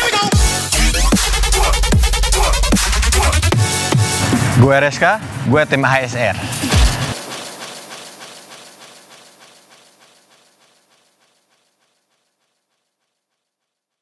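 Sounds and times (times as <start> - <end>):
music with fast even beat: 0.0 - 13.9.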